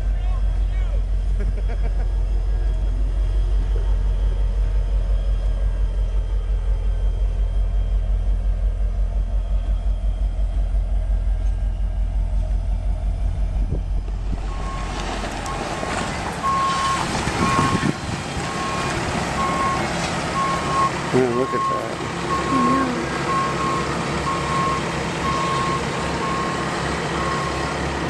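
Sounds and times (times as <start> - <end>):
diesel locomotive rumbling: 0.0 - 28.0
reversing beeper beeps: 14.4 - 17.9, 18.5 - 27.7.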